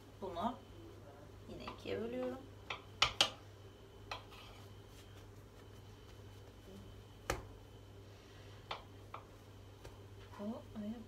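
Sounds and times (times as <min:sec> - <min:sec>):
low steady hum: 0:00.0 - 0:11.0
utensils knocking on stone countertop: 0:02.7 - 0:03.4.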